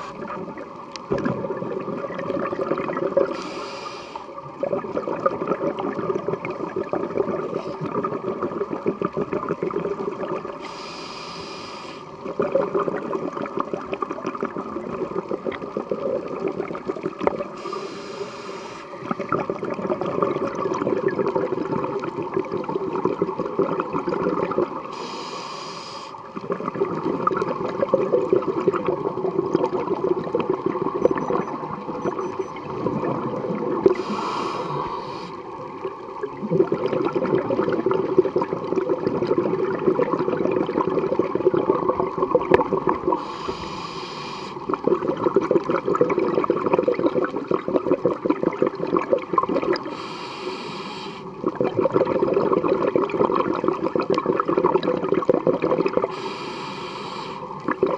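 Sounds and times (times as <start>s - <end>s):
bubbling exhales underwater: 0.0s - 3.6s, 4.4s - 10.7s, 12.1s - 17.9s, 18.9s - 25.0s, 26.2s - 56.8s, 57.4s - 57.9s
regulator hissing inhales: 3.3s - 4.3s, 10.6s - 12.2s, 17.6s - 19.0s, 24.9s - 26.3s, 34.0s - 35.4s, 43.2s - 44.6s, 49.8s - 51.3s, 56.1s - 57.6s.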